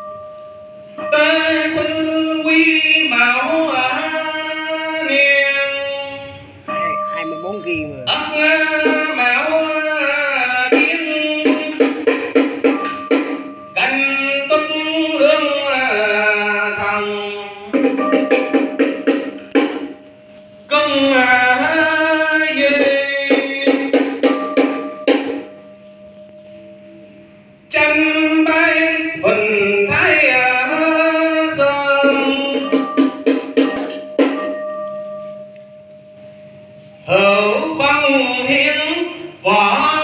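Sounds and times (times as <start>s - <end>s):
person singing: 1.0s - 12.3s, 13.8s - 18.2s, 20.7s - 24.4s, 27.7s - 33.7s.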